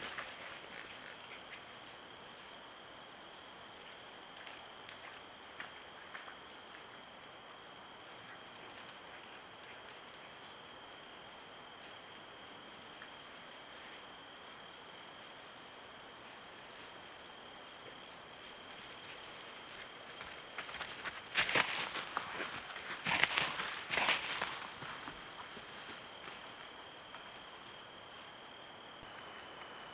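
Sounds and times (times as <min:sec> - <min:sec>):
crickets chirping: 0:00.0 - 0:29.9
hoof thuds on grass: 0:20.2 - 0:26.5.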